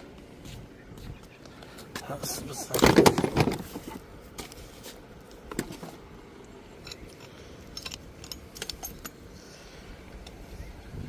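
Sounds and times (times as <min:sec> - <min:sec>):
tools clinking and rattling: 0:06.8 - 0:09.4.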